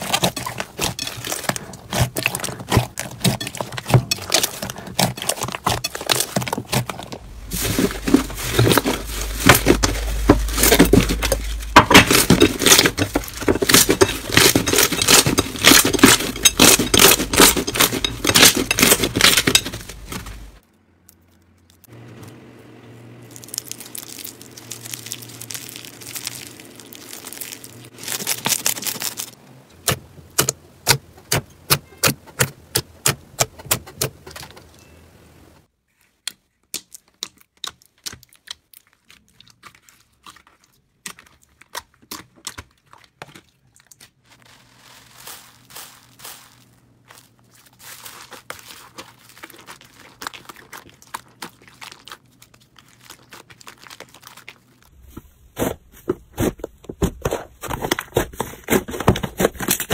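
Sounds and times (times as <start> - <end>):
crunchy slime crackling and popping: 0.0 - 21.9, 23.3 - 29.4, 36.7 - 55.1.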